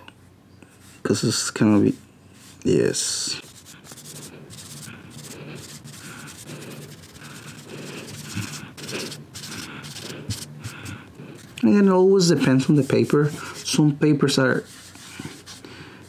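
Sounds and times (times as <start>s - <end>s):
applicator rubbing on paper: 3.4s - 11.5s, 12.2s - 13.8s, 14.5s - 15.6s.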